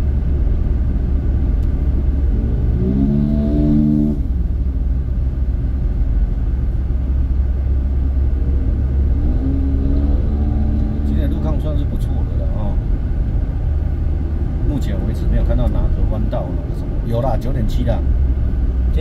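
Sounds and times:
wind and road rumble: 0.0s - 19.0s
motorcycle engine accelerating: 1.4s - 4.7s, 7.4s - 12.4s.

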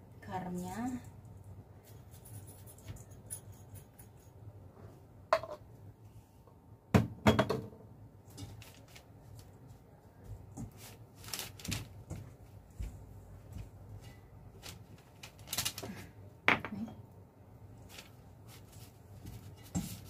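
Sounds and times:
hands mixing dough rustling: 8.4s - 16.1s, 17.8s - 20.0s.

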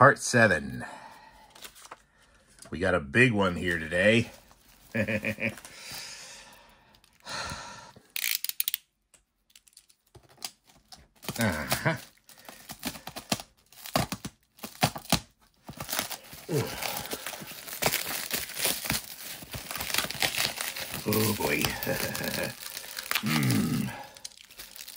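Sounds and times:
plastic wrapping crinkling: 3.7s - 5.8s, 9.6s - 24.9s
packing tape tearing: 8.1s - 8.8s, 9.5s - 24.9s.

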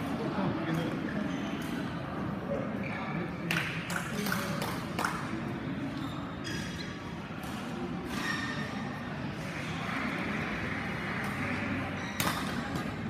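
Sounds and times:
background chatter: 0.0s - 13.0s
rackets hitting shuttlecock: 12.0s - 13.0s.

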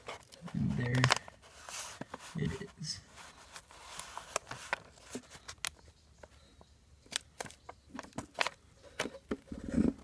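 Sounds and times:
tape and paper packet crinkling: 0.0s - 6.4s, 7.1s - 9.1s.

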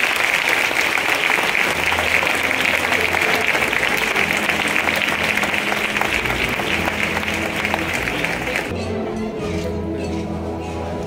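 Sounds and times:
crowd clapping: 0.0s - 8.7s
voices murmuring: 0.0s - 8.7s.

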